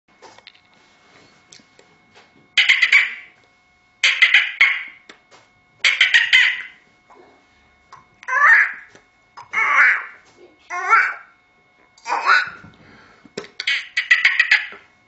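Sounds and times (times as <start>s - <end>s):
mouth popping clicks: 13.4s - 13.8s.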